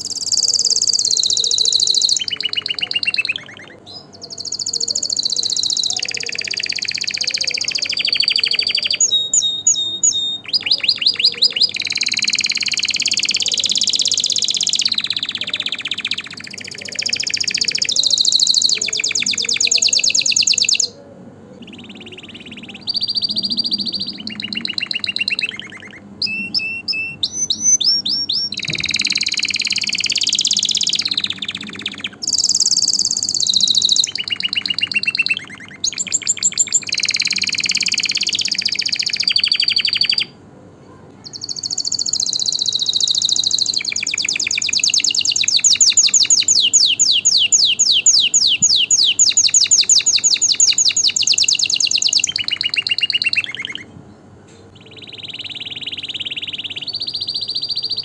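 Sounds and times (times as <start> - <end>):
canary singing trills: 0.0 - 58.0.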